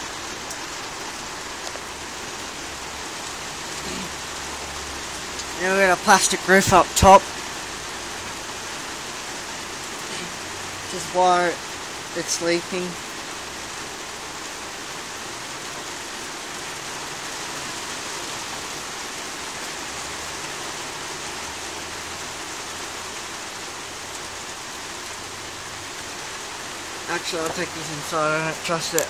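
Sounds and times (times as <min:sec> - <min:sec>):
heavy rain on plastic roof: 0:00.0 - 0:29.0.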